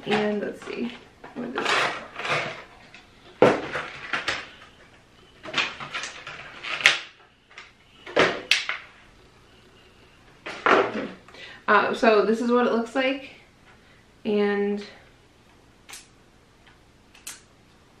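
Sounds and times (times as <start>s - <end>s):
packaging clacks and rustles: 0.1s - 8.8s.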